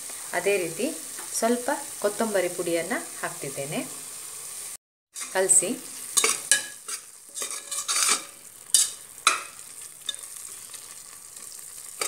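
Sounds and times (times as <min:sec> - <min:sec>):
masala sizzling: 0:00.0 - 0:12.0
steel spatula scraping pot: 0:06.1 - 0:12.0.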